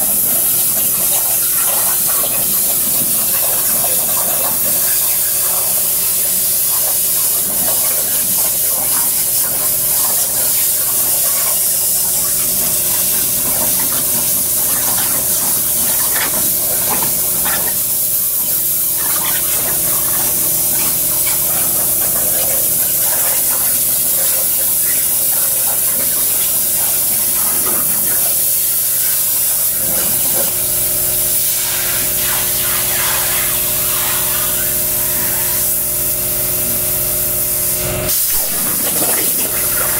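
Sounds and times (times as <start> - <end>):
plasma cutter torch hissing: 0.0 - 39.9.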